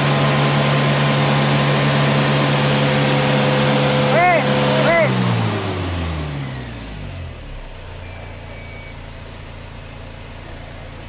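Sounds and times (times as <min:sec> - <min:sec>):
diesel engine idling: 0:00.0 - 0:11.0
short electronic beep: 0:08.0 - 0:09.0.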